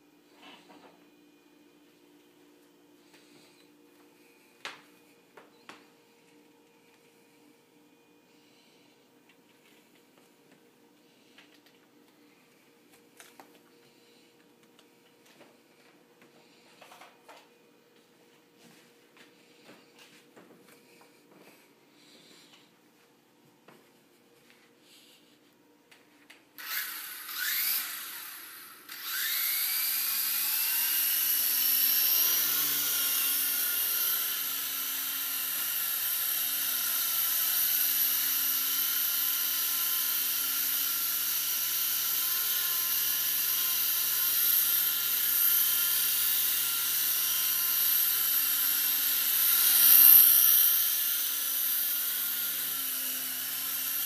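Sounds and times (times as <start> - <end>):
toy helicopter rotors whining: 26.6 - 54.0.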